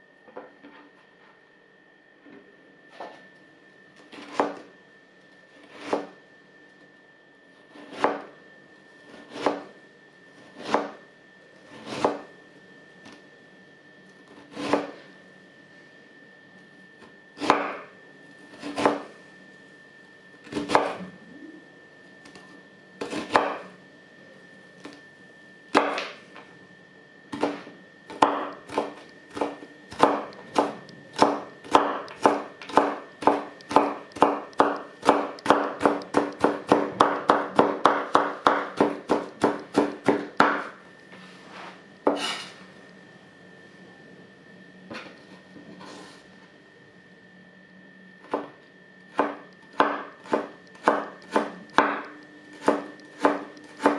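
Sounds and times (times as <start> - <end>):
knife slicing carrot on board: 9.2 - 9.6, 11.7 - 12.2, 14.4 - 15.0, 42.1 - 42.5, 49.2 - 53.9.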